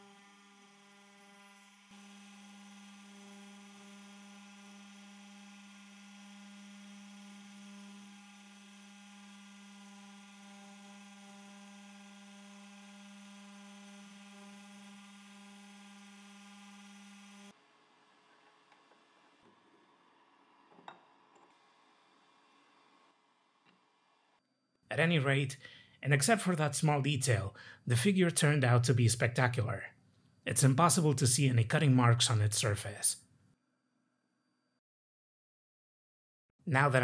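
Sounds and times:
cnc spindle humming: 0:00.0 - 0:17.5.

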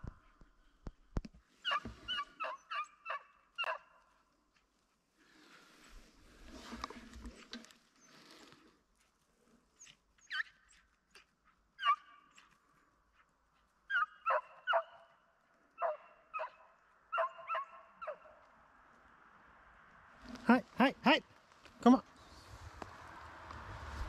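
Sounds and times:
hunting dog barking: 0:01.7 - 0:04.0, 0:13.9 - 0:15.2, 0:15.8 - 0:18.5.

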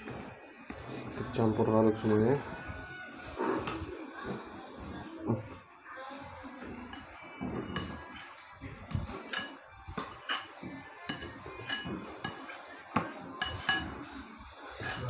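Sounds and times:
metal spoon clinking on ceramic bowl: 0:06.9 - 0:14.1, 0:14.8 - 0:15.0.

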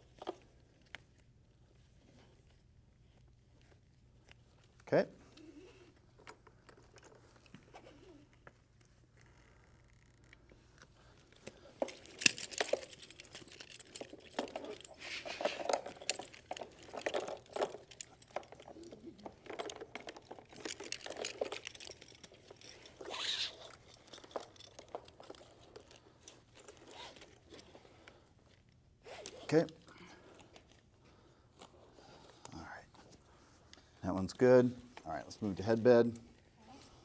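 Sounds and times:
buckles clicking: 0:02.0 - 0:32.6
nylon webbing rustling and sliding: 0:07.3 - 0:19.4, 0:20.4 - 0:32.5.

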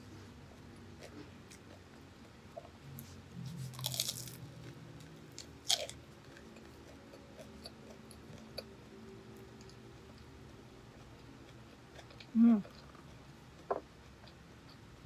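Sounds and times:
soft chewing clicks: 0:00.2 - 0:15.0
crunchy bites into fried food: 0:03.6 - 0:04.4.

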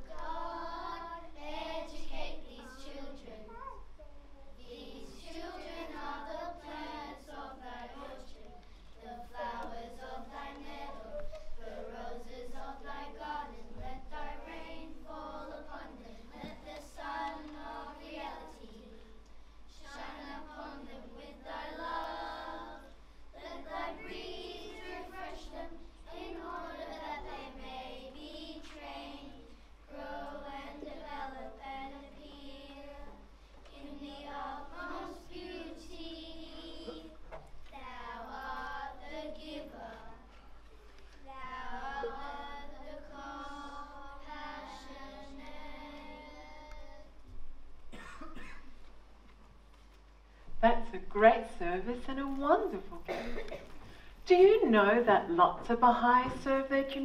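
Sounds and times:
children singing: 0:00.0 - 0:03.5, 0:04.6 - 0:19.1, 0:19.7 - 0:40.4, 0:41.4 - 0:47.1.

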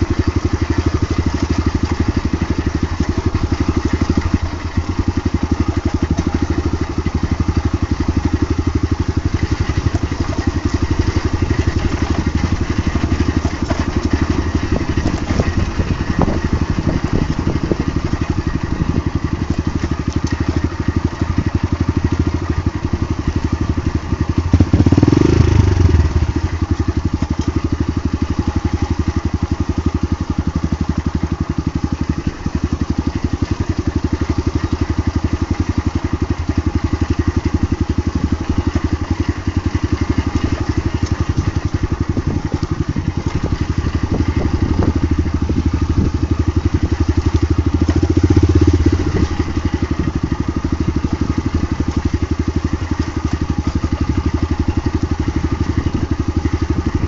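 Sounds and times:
dirt bike engine idling: 0:00.0 - 0:57.0
knocks and rattles from bumpy ground: 0:09.3 - 0:22.2.

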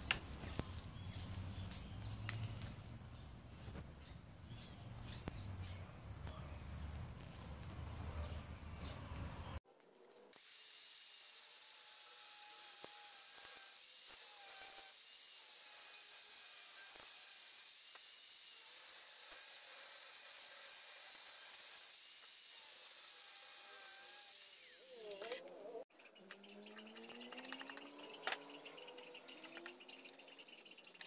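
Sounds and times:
angle grinder cutting steel: 0:10.4 - 0:25.4.

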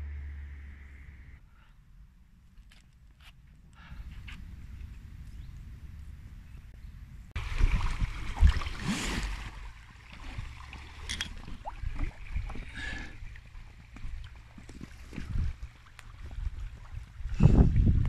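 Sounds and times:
low wind rumble on microphone: 0:03.5 - 0:10.6, 0:11.5 - 0:18.0
splashing rushing river water: 0:07.4 - 0:17.2.

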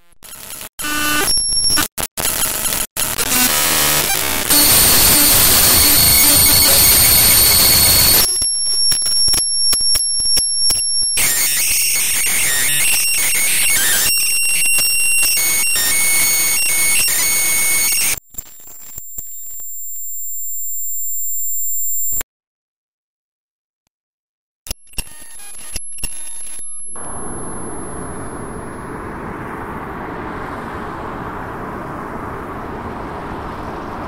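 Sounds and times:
harsh static noise: 0:00.0 - 0:14.0, 0:25.2 - 0:34.0
chopped electronic tones and clicks: 0:00.2 - 0:14.1, 0:24.7 - 0:34.0
high whine: 0:26.8 - 0:34.0
high steady tones: 0:27.0 - 0:34.0.

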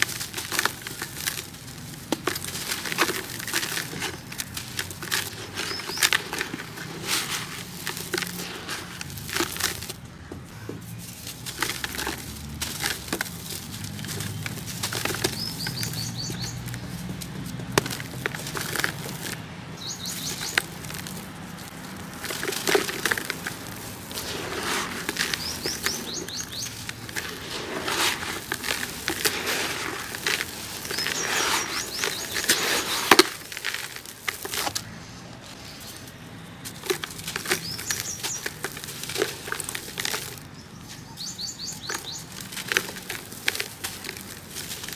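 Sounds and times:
cement chunks crumbling by hand: 0:00.0 - 0:44.9
sand pouring into a bucket: 0:20.1 - 0:34.7.

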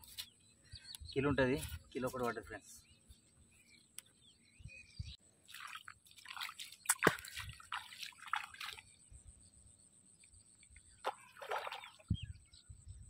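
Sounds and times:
feet splashing in shallow water: 0:05.4 - 0:09.0, 0:11.0 - 0:12.1
water dripping: 0:05.5 - 0:08.8.

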